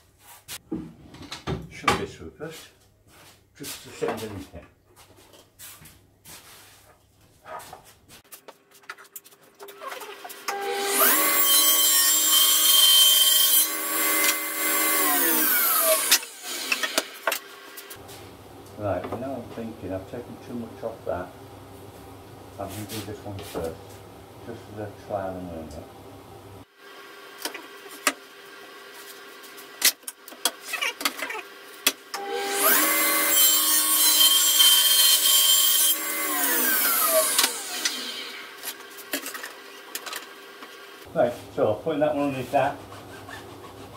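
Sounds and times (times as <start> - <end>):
table saw ripping a board: 10.0 - 17.9, 29.8 - 40.3
saw blade winding down: 10.5 - 17.4, 32.2 - 38.6.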